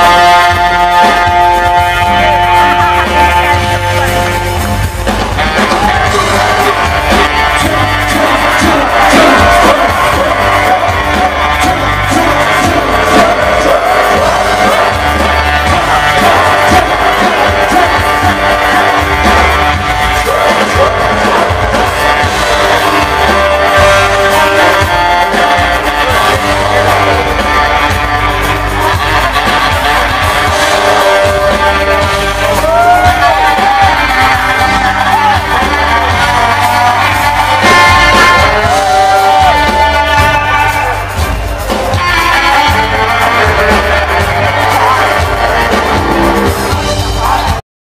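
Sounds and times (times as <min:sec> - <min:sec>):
funk band playing: 0:00.0 - 0:47.6
saxophone lead line: 0:00.0 - 0:47.6.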